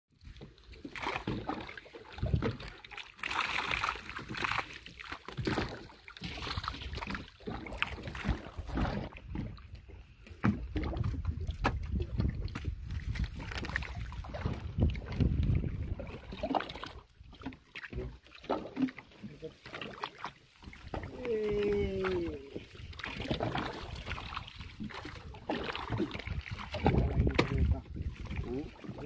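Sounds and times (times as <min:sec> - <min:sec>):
water splashing against boat: 0:00.1 - 0:29.0
wind rumble on microphone: 0:02.2 - 0:02.6, 0:10.5 - 0:16.9, 0:20.8 - 0:29.0.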